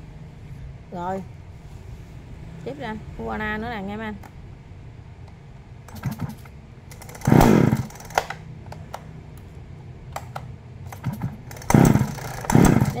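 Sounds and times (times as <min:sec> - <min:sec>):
chainsaw starter cord whirring: 0:05.9 - 0:08.4, 0:10.9 - 0:13.0.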